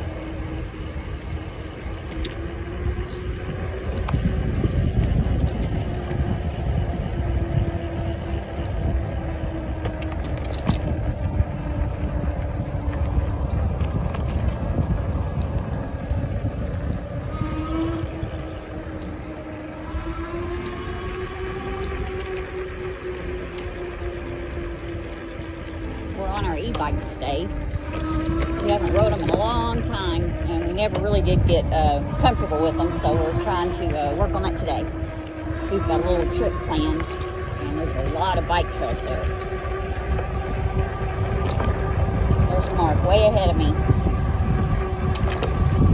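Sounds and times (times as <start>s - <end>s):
electric motor whining: 0.0s - 45.9s
wind buffeting microphone: 0.0s - 45.9s.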